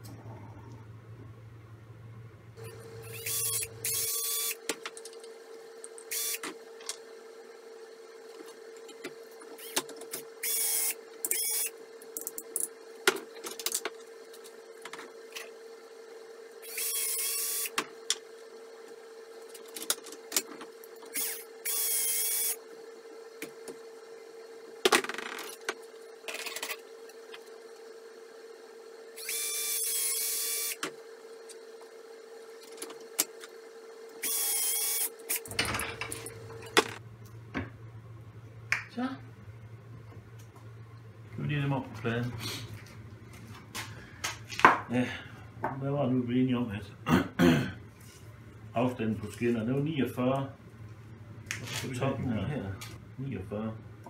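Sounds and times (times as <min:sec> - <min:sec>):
faint hum: 0:00.0 - 0:54.0
cordless drill whining: 0:02.6 - 0:04.6, 0:06.1 - 0:06.4, 0:10.4 - 0:11.7, 0:16.6 - 0:17.8, 0:21.2 - 0:22.6, 0:29.2 - 0:30.8, 0:34.2 - 0:35.1.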